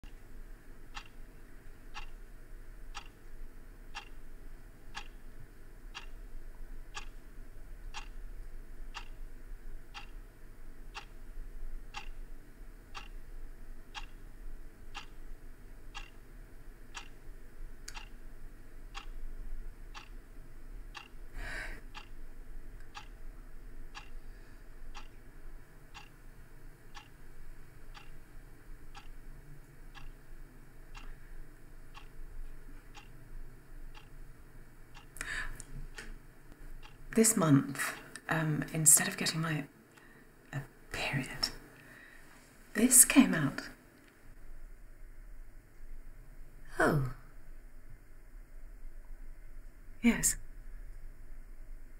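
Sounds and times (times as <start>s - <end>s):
clock ticking: 0.8s - 1.3s, 1.9s - 2.2s, 2.9s - 3.3s, 3.9s - 4.3s, 4.9s - 5.2s, 5.9s - 6.3s, 6.9s - 7.2s, 7.8s - 8.2s, 8.9s - 9.2s, 9.9s - 10.3s, 10.9s - 11.2s, 11.9s - 12.3s, 12.9s - 13.3s, 13.9s - 14.3s, 14.9s - 15.2s, 15.9s - 16.2s, 16.9s - 17.2s, 17.9s - 18.2s, 18.9s - 19.2s, 19.9s - 20.3s, 20.9s - 21.3s, 21.9s - 22.2s, 22.8s - 23.2s, 23.9s - 24.2s, 24.9s - 25.2s, 25.9s - 26.2s, 26.9s - 27.2s, 27.8s - 28.2s, 28.9s - 29.2s, 29.9s - 30.3s, 30.9s - 31.2s, 31.9s - 33.2s, 33.9s - 34.2s, 34.9s - 36.1s, 36.8s - 38.2s.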